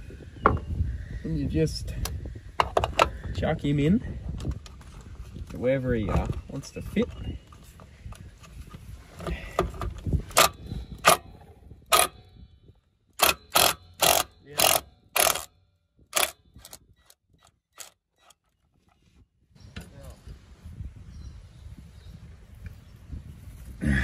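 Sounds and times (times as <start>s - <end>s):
impact wrench hammering: 10.4s - 11.3s, 11.9s - 12.2s, 13.2s - 15.5s.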